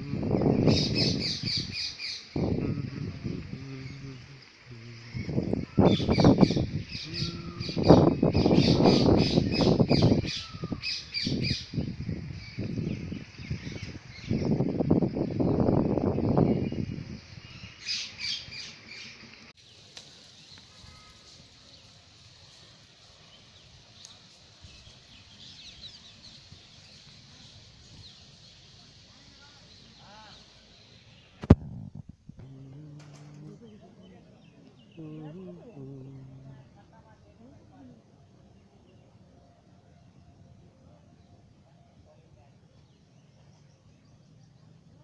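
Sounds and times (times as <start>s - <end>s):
birds chirping: 0.0s - 22.0s, 23.1s - 45.0s
low rumble: 2.4s - 5.6s
rough low rumble: 2.4s - 8.5s, 31.5s - 37.0s.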